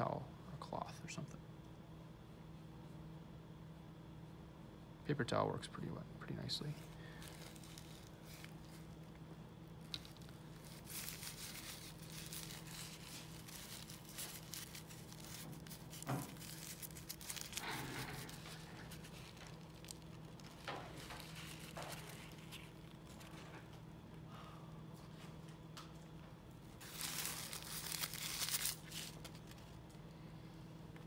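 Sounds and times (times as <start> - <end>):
steady low hum: 0.0 - 31.0
paper towel crinkling: 6.7 - 9.2, 9.8 - 23.8, 26.7 - 29.9.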